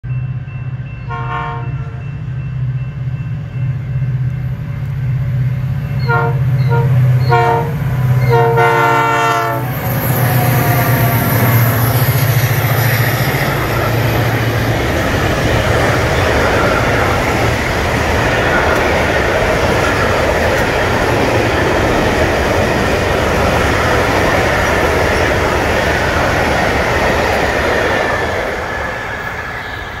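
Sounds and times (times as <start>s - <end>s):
diesel locomotive engines droning: 0.0s - 30.0s
train air horn blasts: 1.1s - 2.1s, 6.0s - 11.8s
wheels clattering on rails: 9.8s - 29.5s.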